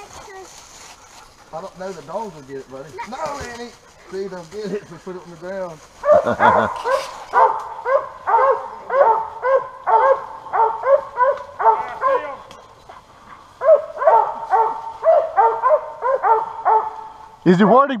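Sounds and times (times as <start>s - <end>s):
dog barking: 6.0s - 12.4s, 13.6s - 17.8s.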